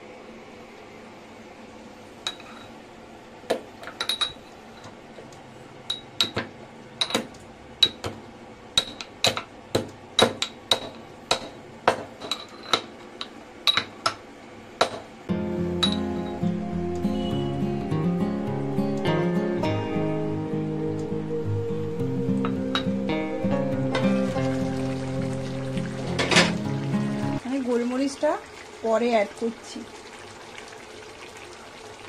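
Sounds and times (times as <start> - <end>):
music: 15.3 - 27.4.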